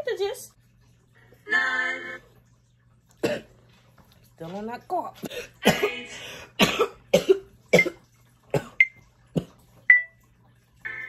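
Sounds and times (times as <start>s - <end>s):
woman coughing: 3.2s - 3.5s, 5.2s - 6.0s, 6.6s - 8.8s.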